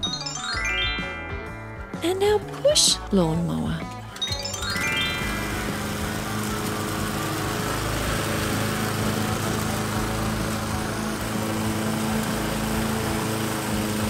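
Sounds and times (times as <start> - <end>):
petrol lawn mower running: 3.8 - 14.0.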